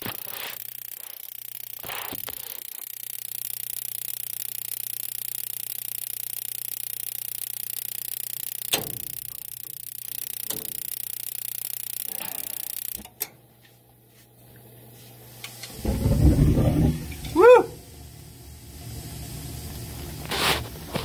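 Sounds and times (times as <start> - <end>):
furnace hiss and hum: 11.6 - 21.0
burners igniting with low rumble: 15.7 - 21.0.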